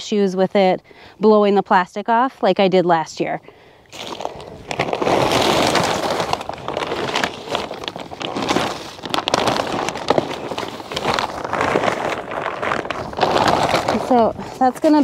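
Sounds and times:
plastic film rustling and crackling: 3.9s - 15.0s.

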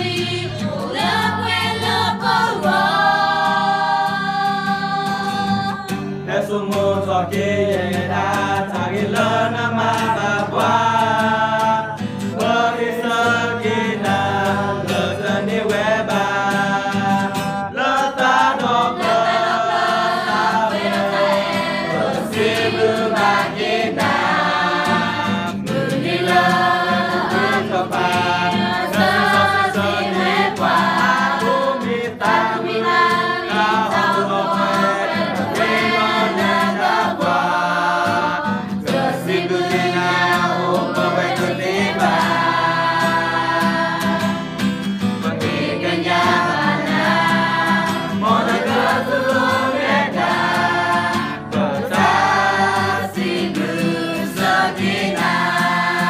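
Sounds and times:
group singing: 0.0s - 56.0s
strummed acoustic guitar: 0.0s - 56.0s.

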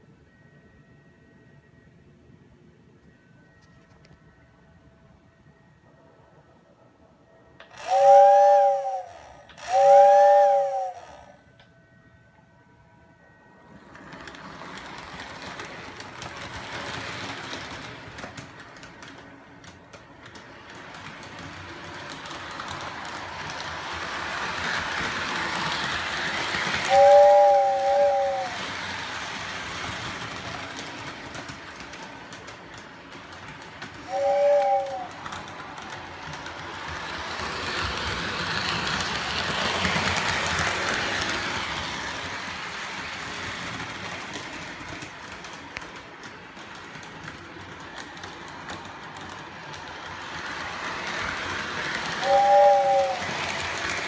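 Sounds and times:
toy train running on track: 7.5s - 11.7s, 13.2s - 54.0s
toy train whistle blasts: 7.6s - 11.4s, 24.9s - 29.0s, 34.0s - 35.4s, 52.2s - 53.6s.

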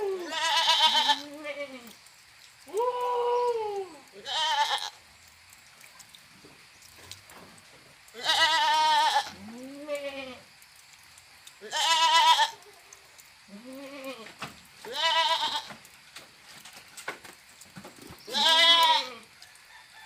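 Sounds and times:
goat bleating: 0.0s - 2.0s, 4.2s - 5.0s, 8.2s - 10.4s, 11.6s - 12.8s, 13.5s - 15.8s, 18.3s - 19.3s.

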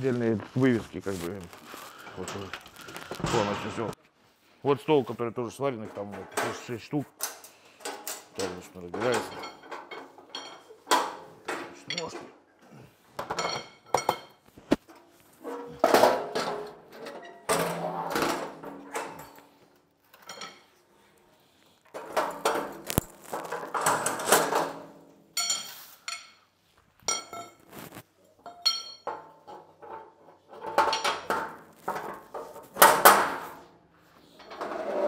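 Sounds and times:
steel clanking and clinking: 5.7s - 12.4s, 13.2s - 20.8s, 21.9s - 26.5s, 27.1s - 27.7s, 28.4s - 33.6s.

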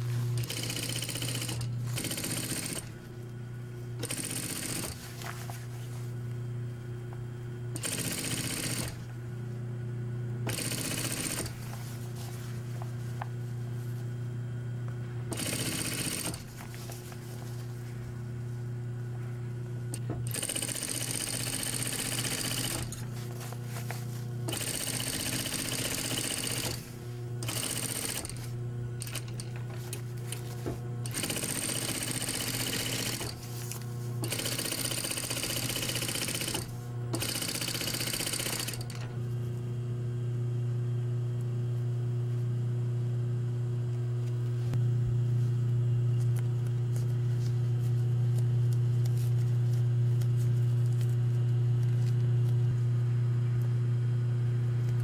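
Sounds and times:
steady low hum: 0.0s - 55.0s
sewing machine stitching fabric: 0.3s - 3.0s, 4.0s - 5.2s, 7.7s - 9.1s, 10.4s - 11.7s, 15.3s - 16.6s, 19.9s - 23.1s, 24.5s - 33.5s, 34.2s - 39.2s.

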